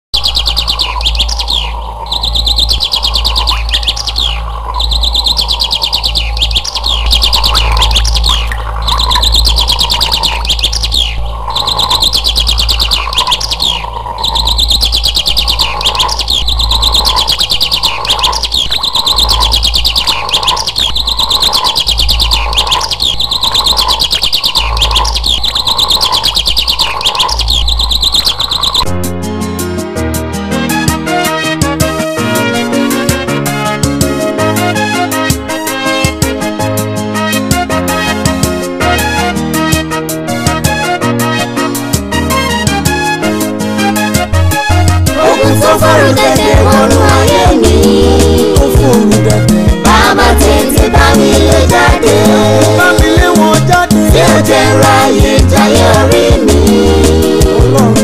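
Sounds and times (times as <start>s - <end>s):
steady low hum: 0.2s - 28.8s
birds chirping in high trills: 0.2s - 28.9s
low pulsing call: 0.2s - 28.9s, 45.0s - 57.9s.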